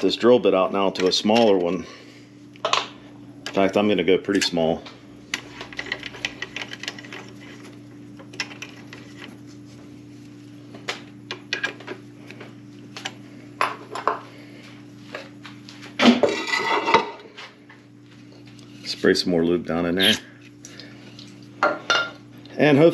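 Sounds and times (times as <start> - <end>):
machine hum: 0.0 - 22.9.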